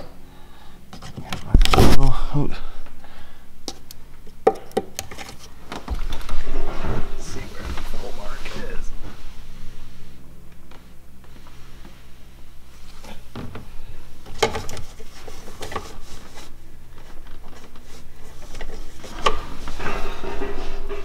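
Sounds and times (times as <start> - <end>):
rustling and rubbing: 5.1 - 21.0.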